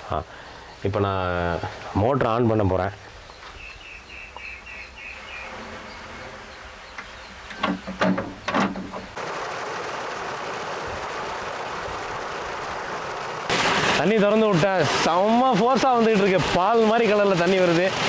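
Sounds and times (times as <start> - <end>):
water gushing from pipe: 9.2 - 18.0.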